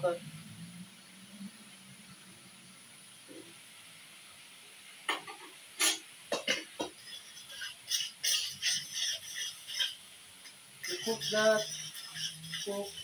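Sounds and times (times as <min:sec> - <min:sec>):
utensil scraping metal pan: 0:06.8 - 0:10.0, 0:10.8 - 0:13.0.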